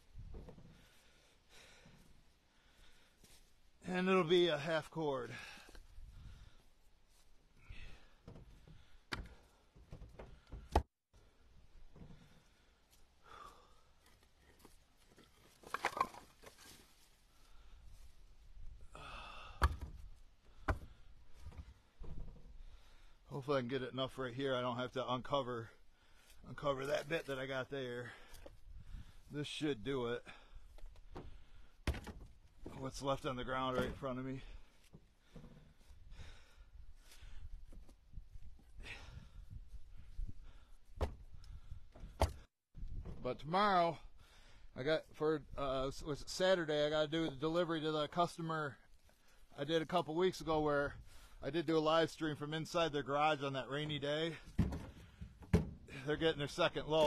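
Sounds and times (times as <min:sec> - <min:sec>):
wood scraping: 0:14.0 - 0:17.0
firewood knocking together: 0:15.6 - 0:16.6, 0:19.6 - 0:22.3, 0:54.5 - 0:55.9.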